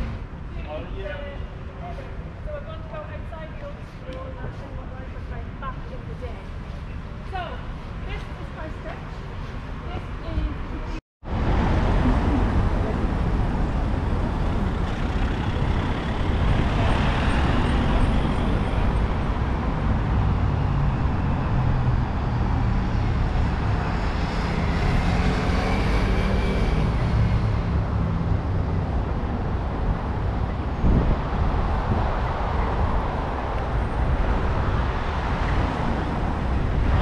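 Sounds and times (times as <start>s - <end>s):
car engines passing on asphalt: 10.6s - 37.0s.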